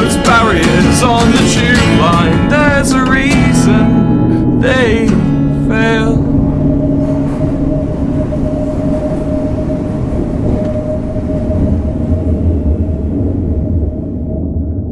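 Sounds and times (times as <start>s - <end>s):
song phrase with held notes: 0.0s - 11.1s
underground train rumble and whine: 0.0s - 14.9s.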